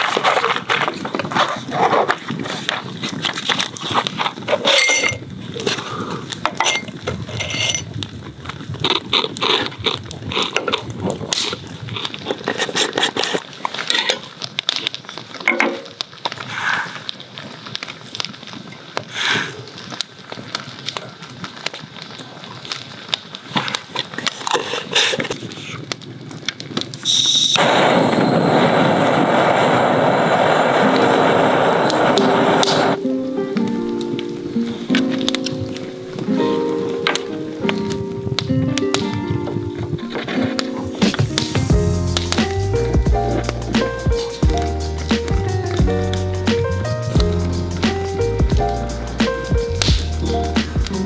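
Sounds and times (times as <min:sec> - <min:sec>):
gas torch flame hissing: 0:27.0 - 0:33.0.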